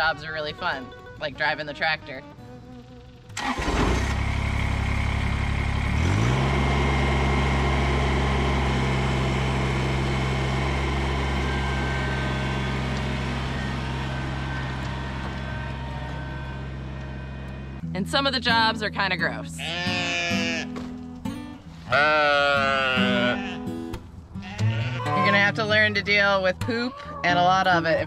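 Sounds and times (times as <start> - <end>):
tractor diesel engine running: 0.0 - 28.0
starter cranking diesel engine: 2.7 - 17.8.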